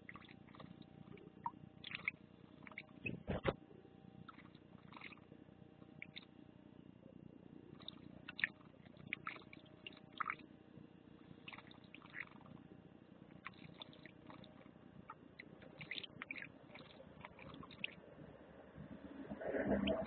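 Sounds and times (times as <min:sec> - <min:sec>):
birds splashing in water: 0:00.0 - 0:02.9, 0:04.3 - 0:05.2, 0:07.8 - 0:10.5, 0:11.4 - 0:12.6, 0:13.4 - 0:18.0
low rumble: 0:18.1 - 0:20.0.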